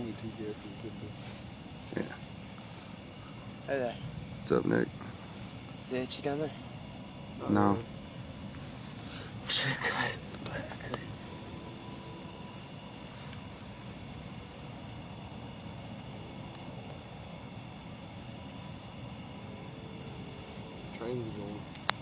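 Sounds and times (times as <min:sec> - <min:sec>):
crickets and night insects trilling: 0:00.0 - 0:22.0.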